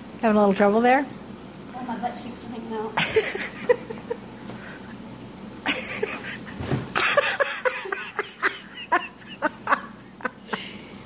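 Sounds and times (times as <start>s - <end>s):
people laughing: 5.7s - 10.7s.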